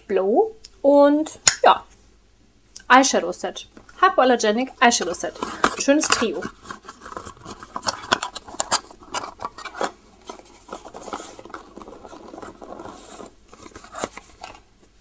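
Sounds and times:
packaging rustling: 4.8 - 15.0.

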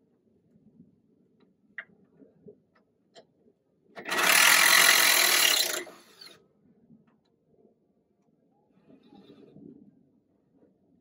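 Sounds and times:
old wood creaking and splitting: 4.0 - 6.3.

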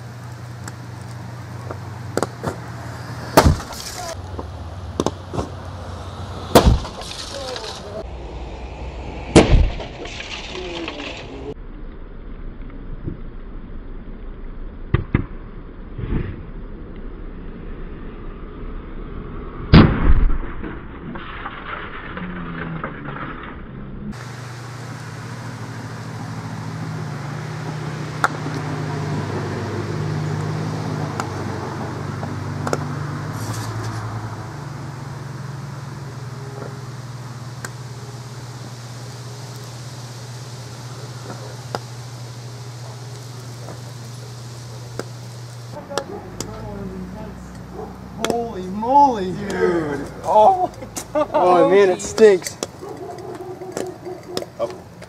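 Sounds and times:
fire rushing: 0.0 - 15.1, 15.7 - 54.7
low hum: 0.0 - 51.4
sharp pops: 3.2 - 4.2, 6.4 - 7.9, 9.3 - 11.2, 41.2 - 46.6.

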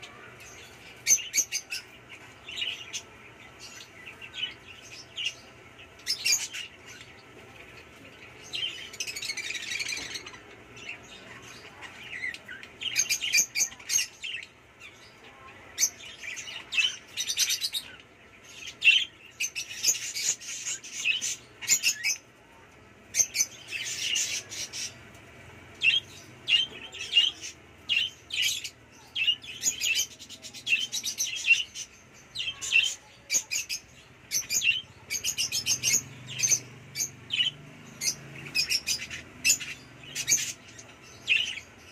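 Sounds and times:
budgerigars chirping: 32.5 - 41.9.

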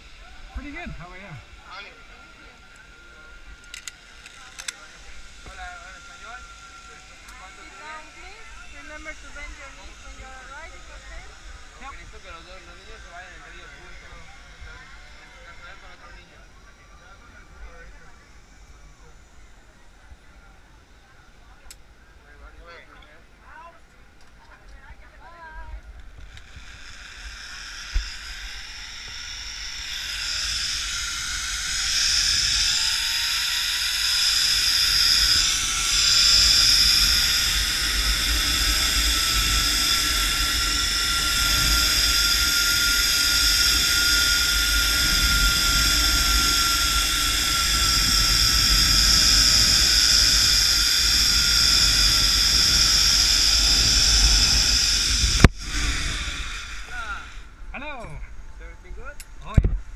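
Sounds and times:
zip line pulleys whirring: 0.0 - 58.4
wind rumble on microphone: 30.4 - 57.0, 59.5 - 59.9.

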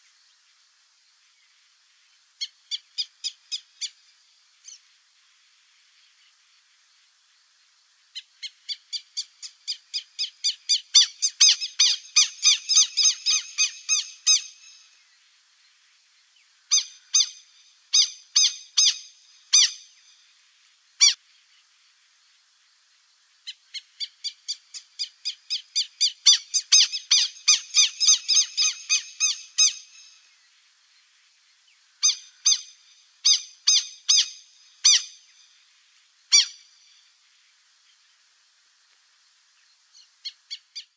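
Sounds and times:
ibises calling: 8.2 - 14.9, 16.7 - 20.0, 21.0 - 21.2, 23.5 - 30.2, 32.0 - 35.4, 36.3 - 37.0.

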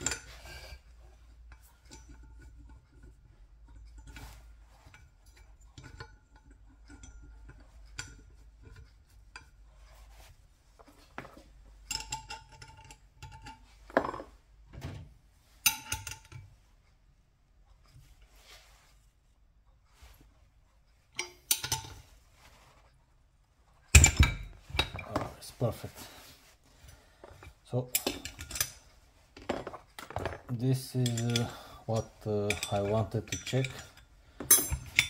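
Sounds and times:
metal tools clinking on flywheel: 30.6 - 35.0.

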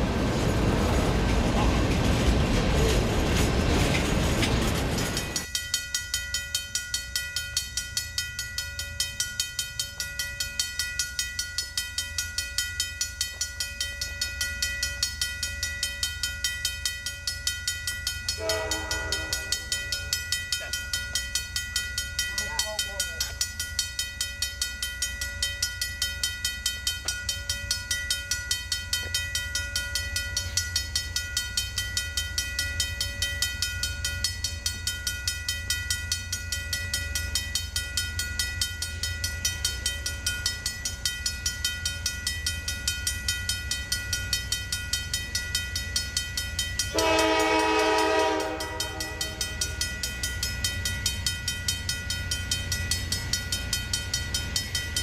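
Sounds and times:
crossing warning bell ringing: 0.0 - 55.0
locomotive horn blast: 18.4 - 19.6, 46.9 - 49.4.

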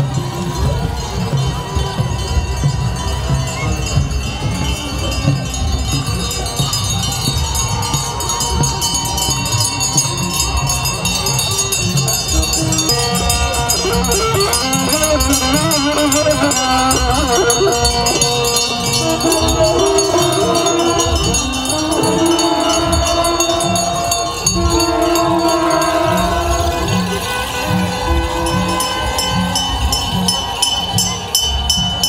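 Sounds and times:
drum beat: 0.0 - 32.0
jingling and rattling: 0.4 - 32.0
voices singing slow melody: 11.6 - 32.0.

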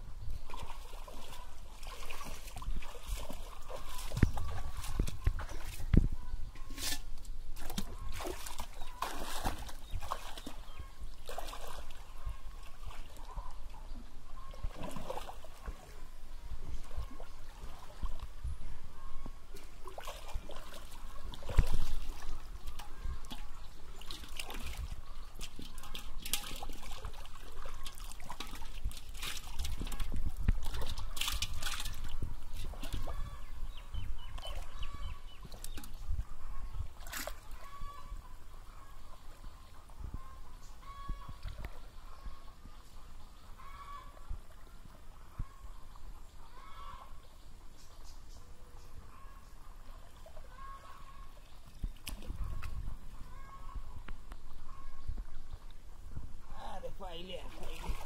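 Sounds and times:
water sloshing and splashing: 0.3 - 18.5, 19.5 - 39.4, 49.8 - 58.0.

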